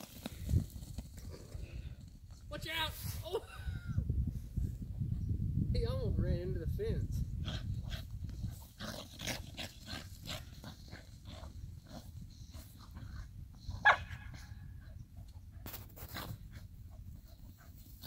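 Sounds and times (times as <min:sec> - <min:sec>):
dogs growling and snarling: 0:07.3 - 0:15.0
dog barking: 0:13.8 - 0:14.3.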